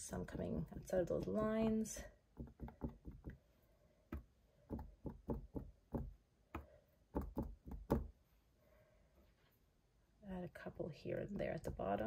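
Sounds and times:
cotton swab tapping on canvas: 2.3s - 3.4s, 4.1s - 8.2s.

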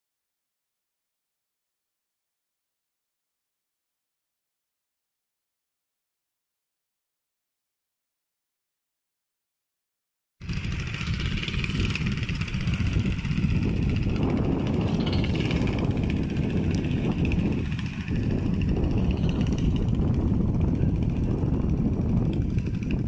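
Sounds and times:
boat engine running: 10.4s - 23.0s.

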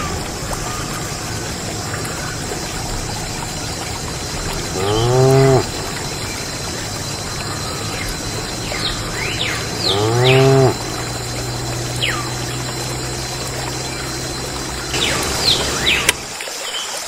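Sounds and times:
water pouring and trickling: 0.0s - 17.0s
cow mooing: 4.6s - 5.8s, 9.7s - 12.0s.

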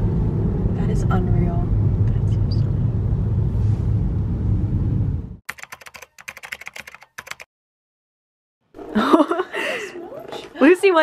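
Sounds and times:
road noise inside a car: 0.0s - 5.4s
keyboard typing clicks: 5.5s - 7.5s.

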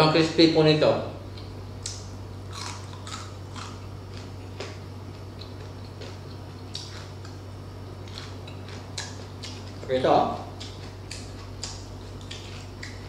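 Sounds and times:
steady low hum: 0.0s - 13.0s
crunchy food chewing: 1.4s - 13.0s.

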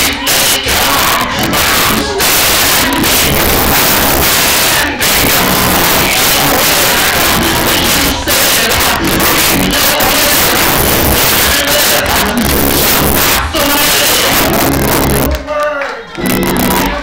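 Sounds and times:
church worship music: 0.0s - 17.0s
congregation voices: 0.0s - 17.0s.

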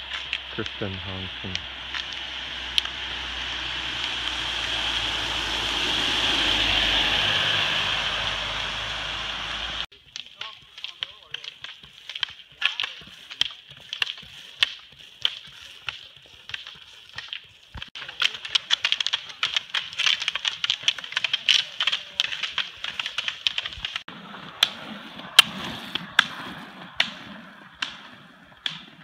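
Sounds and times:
ski poles clicking on asphalt: 0.0s - 3.1s, 9.9s - 29.0s
rollerski wheels hissing on wet road: 0.0s - 9.9s.

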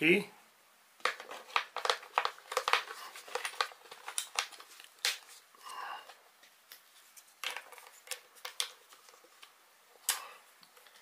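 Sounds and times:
plastic clicks and scrapes: 1.0s - 5.3s.

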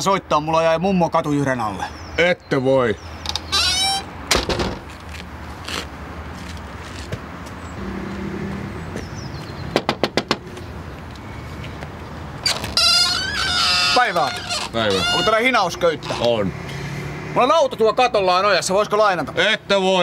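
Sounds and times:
outdoor background hum: 0.0s - 20.0s
wooden door slamming: 3.6s - 4.9s
knocks on door: 9.8s - 10.5s.

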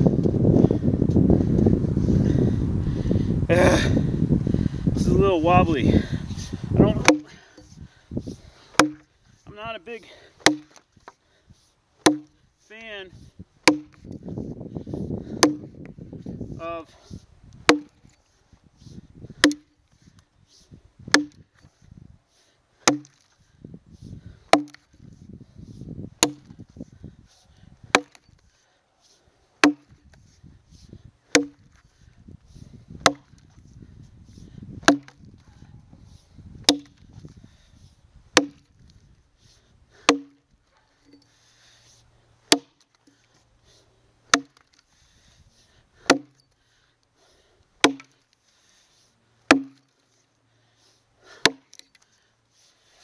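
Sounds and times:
axe chopping into log: 6.9s - 7.4s, 8.7s - 9.1s, 10.4s - 10.8s, 12.0s - 12.4s, 13.6s - 14.1s, 15.3s - 15.7s, 17.7s - 18.0s, 19.4s - 19.7s, 21.1s - 21.4s, 22.8s - 23.3s, 24.5s - 24.9s, 26.2s - 26.6s, 27.9s - 28.2s, 29.6s - 30.0s, 31.3s - 31.8s, 33.0s - 33.4s, 34.8s - 35.2s, 36.6s - 37.0s, 38.3s - 38.8s, 40.0s - 40.4s, 42.5s - 42.8s, 44.3s - 44.8s, 46.0s - 46.4s, 47.8s - 48.2s, 49.5s - 49.9s, 51.4s - 52.0s.

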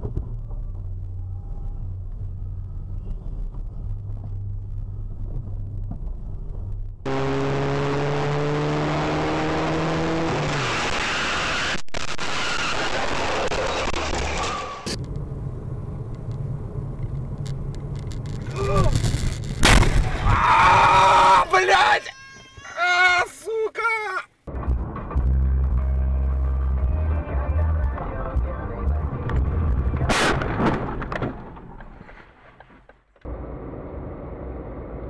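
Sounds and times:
car engine and road noise: 0.0s - 21.8s, 24.4s - 35.0s.

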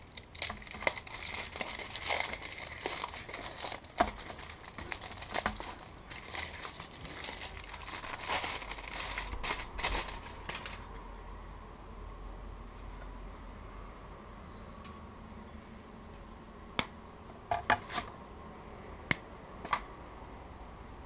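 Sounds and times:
foil wrapper crinkling: 0.0s - 11.0s.

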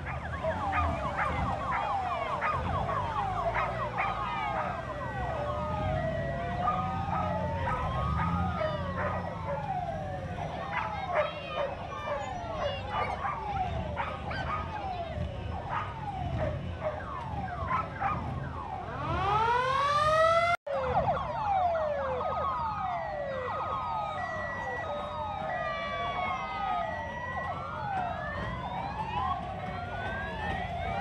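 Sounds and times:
sirens wailing: 0.0s - 31.0s.

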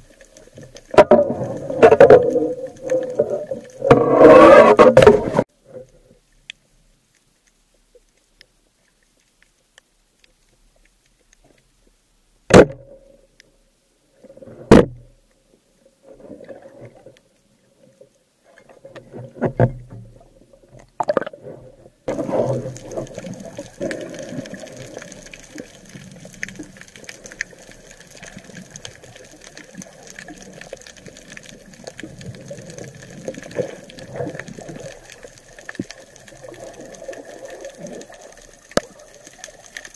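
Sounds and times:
faint steady hum: 0.0s - 39.9s
water wash: 22.1s - 39.9s.

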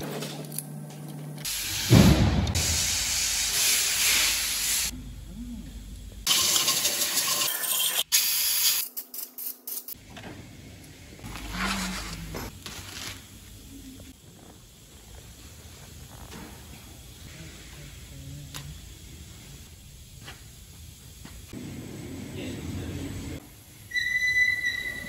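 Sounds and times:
compressed air blow gun hissing: 1.5s - 4.9s.

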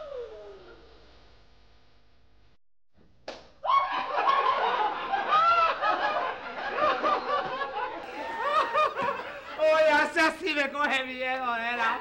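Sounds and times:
audience laughing: 3.8s - 10.2s.

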